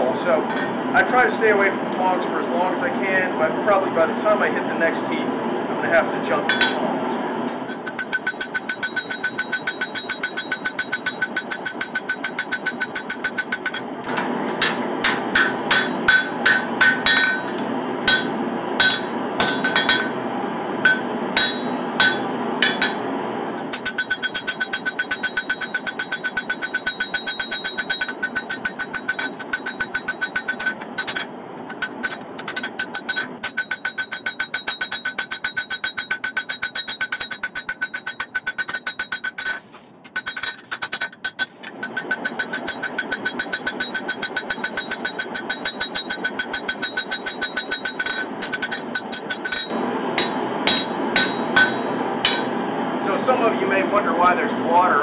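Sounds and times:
steady noise: 0:03.2 - 0:55.0
hammer striking blade on anvil: 0:06.5 - 0:06.8, 0:07.8 - 0:20.2, 0:20.8 - 0:23.1, 0:23.7 - 0:39.6, 0:40.2 - 0:52.6.

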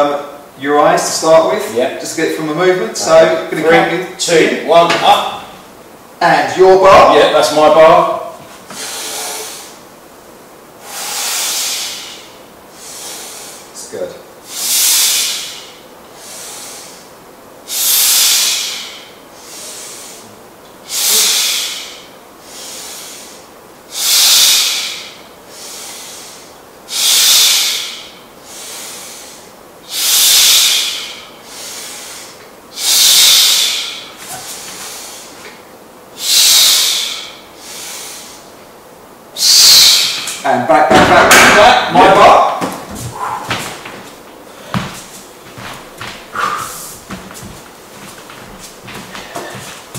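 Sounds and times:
loud hissing breaths: 0:08.7 - 0:09.9, 0:10.8 - 0:38.6, 0:39.3 - 0:40.5, 0:43.1 - 0:43.6, 0:46.3 - 0:47.2, 0:49.0 - 0:49.9
quiet breathing: 0:24.7 - 0:26.6, 0:46.3 - 0:47.0.

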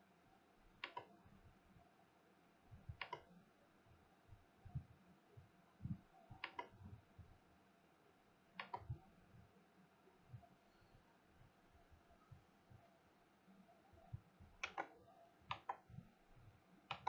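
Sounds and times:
computer mouse button clicking: 0:00.8 - 0:01.1, 0:03.0 - 0:03.3, 0:06.4 - 0:06.8, 0:08.6 - 0:09.0, 0:14.6 - 0:15.8
faint low thuds: 0:04.3 - 0:07.4.

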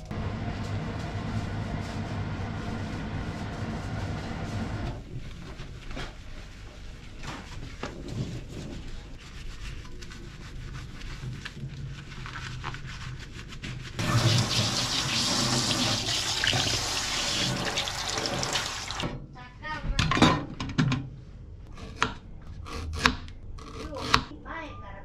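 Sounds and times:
sponge scrubbing steel sink: 0:00.6 - 0:04.9, 0:12.8 - 0:19.0
tap water pouring into drain: 0:14.0 - 0:19.0.

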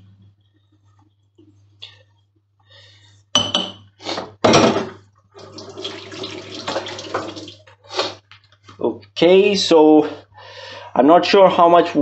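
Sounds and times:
running water: 0:05.4 - 0:07.7.

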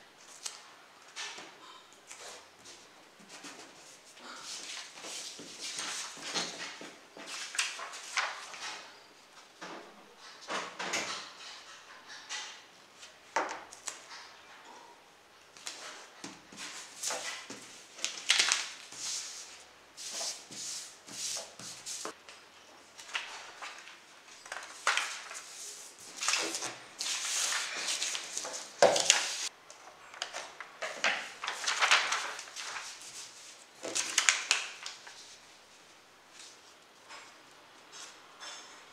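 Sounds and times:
paper rustling on a wooden table: 0:02.2 - 0:08.8, 0:15.6 - 0:22.2, 0:23.0 - 0:29.5, 0:30.2 - 0:35.5.

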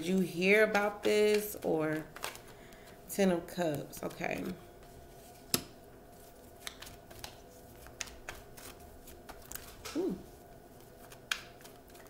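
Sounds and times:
cards clicking and tapping: 0:00.1 - 0:04.6, 0:06.6 - 0:10.0, 0:11.0 - 0:12.0
cards snapping: 0:00.6 - 0:03.0, 0:06.6 - 0:10.0, 0:11.0 - 0:12.0
low voice humming: 0:09.9 - 0:10.3.

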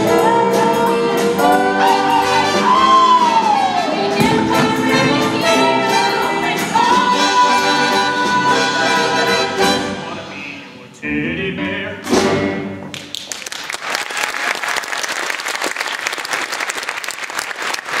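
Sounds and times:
audience applauding: 0:12.9 - 0:18.0.

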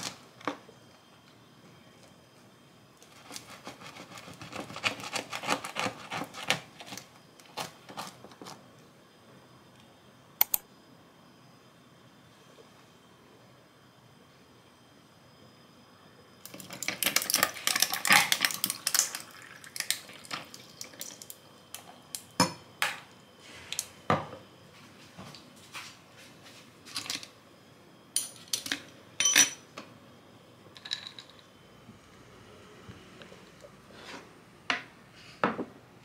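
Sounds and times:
ice crackling and clinking: 0:16.4 - 0:21.3
coffee pouring over ice: 0:16.5 - 0:21.3
dishes clinking: 0:28.2 - 0:29.7
glassware set down on counter: 0:35.4 - 0:35.7.

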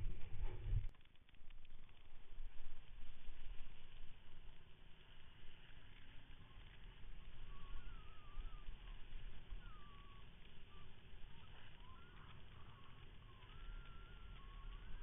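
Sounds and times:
boat engine rumble: 0:00.0 - 0:00.9, 0:01.9 - 0:15.0
high wavering whine: 0:00.0 - 0:15.0.

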